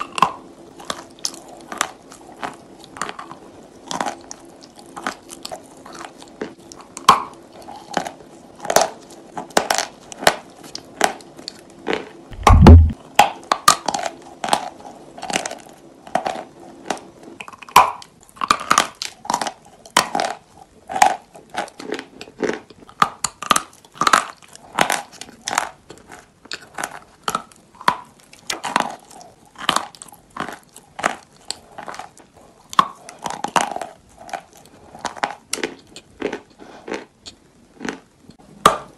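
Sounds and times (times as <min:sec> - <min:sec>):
chalk crunching and chewing: 0:00.0 - 0:12.8, 0:13.4 - 0:38.4
loud low thump: 0:12.4 - 0:13.0.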